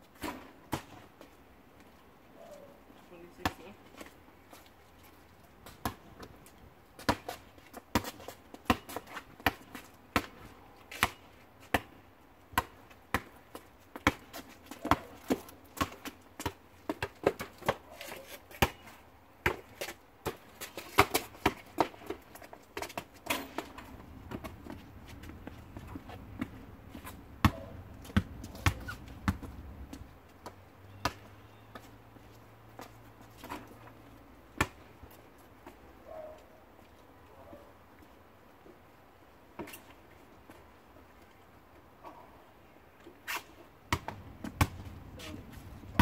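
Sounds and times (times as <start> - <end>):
basketball bouncing on asphalt: 3.4 - 3.7, 5.6 - 6.4, 7.0 - 17.8, 18.5 - 31.9, 34.5 - 35.1, 43.9 - 45.0.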